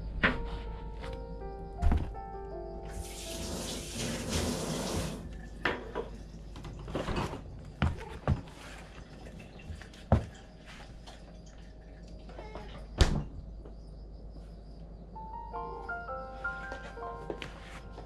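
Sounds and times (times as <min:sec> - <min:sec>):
water running: 0:02.9 - 0:06.8, 0:08.4 - 0:12.4.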